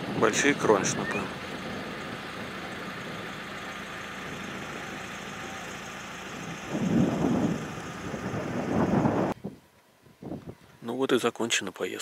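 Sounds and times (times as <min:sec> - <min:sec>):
wind on microphone: 0:00.0 - 0:03.5, 0:06.3 - 0:10.8.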